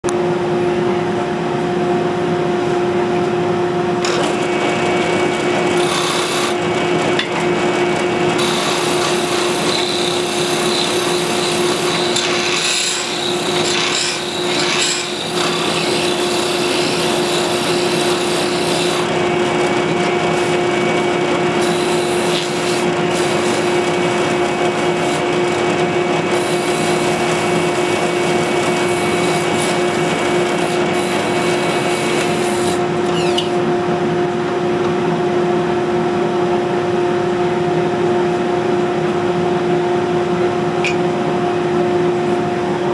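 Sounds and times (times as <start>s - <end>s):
drill press motor hum: 4.0s - 33.6s
file rasping against wood: 5.7s - 6.6s, 8.4s - 19.2s, 21.6s - 25.2s.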